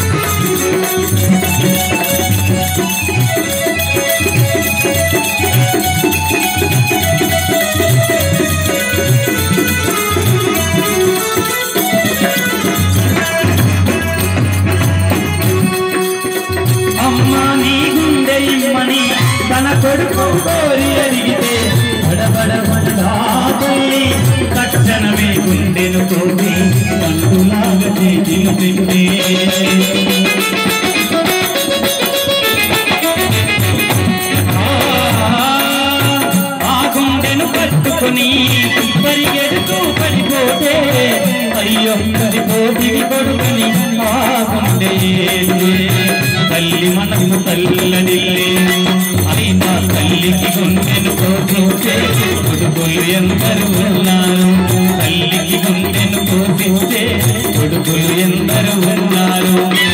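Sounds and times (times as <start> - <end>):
electronic keyboard melody: 0.0 - 44.0
jingling hand percussion: 0.0 - 59.9.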